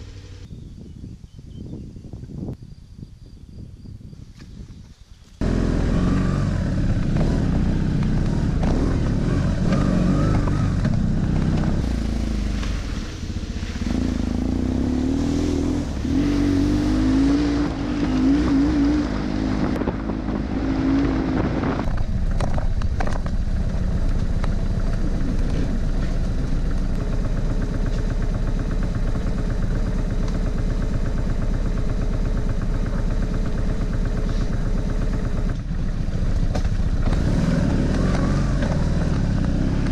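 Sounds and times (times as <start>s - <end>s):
motorcycle engine running: 0.0s - 0.9s, 5.4s - 39.9s.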